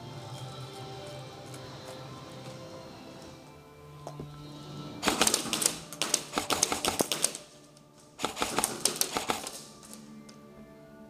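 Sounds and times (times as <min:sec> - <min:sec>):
rapid airsoft gunshots: 0:05.0 - 0:07.5, 0:08.2 - 0:09.7.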